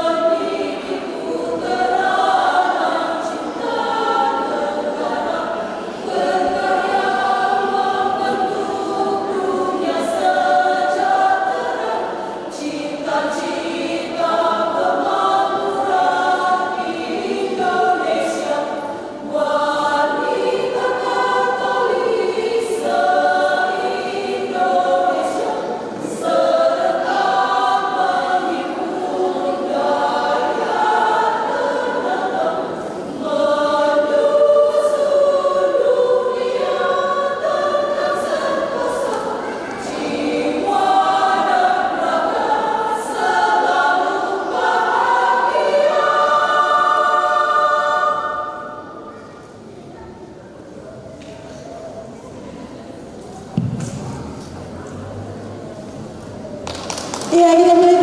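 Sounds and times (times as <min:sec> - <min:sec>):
women's choir singing: 0:00.0 - 0:50.4, 0:51.4 - 0:58.0.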